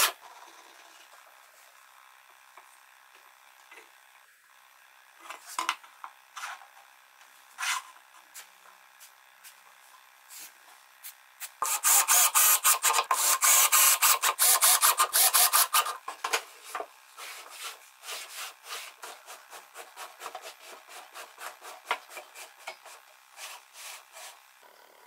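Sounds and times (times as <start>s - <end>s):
hand tool scraping wood: 7.6s - 8.5s, 16.6s - 24.4s.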